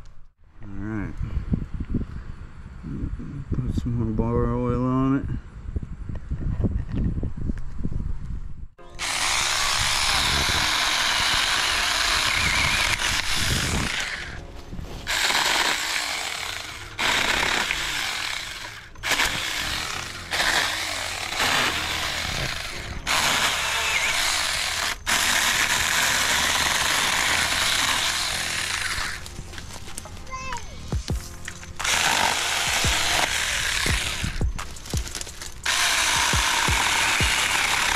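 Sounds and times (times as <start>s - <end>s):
electric chainsaw whining: 8.8s - 14.4s, 15.0s - 29.8s, 31.8s - 37.9s.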